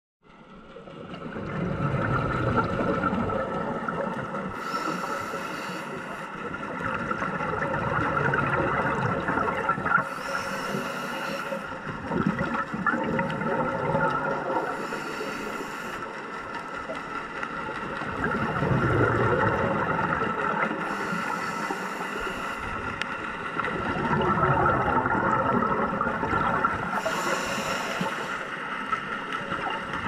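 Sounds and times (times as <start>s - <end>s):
steady underwater hum: 0.2s - 30.0s
scuba regulator breathing hiss: 4.6s - 6.4s, 10.0s - 11.8s, 14.6s - 16.2s, 20.8s - 22.8s, 26.9s - 28.6s.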